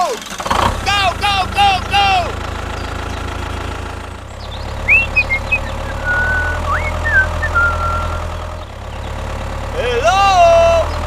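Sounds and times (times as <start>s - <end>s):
tractor engine idling: 0.0s - 11.0s
high whistled chirps: 4.4s - 8.4s.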